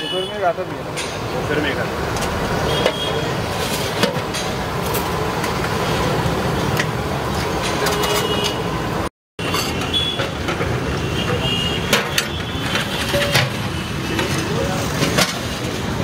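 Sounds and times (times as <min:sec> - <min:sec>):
street traffic rumble: 0:00.0 - 0:16.0
clinks of steel plates and ladle: 0:09.4 - 0:10.7, 0:11.9 - 0:15.4.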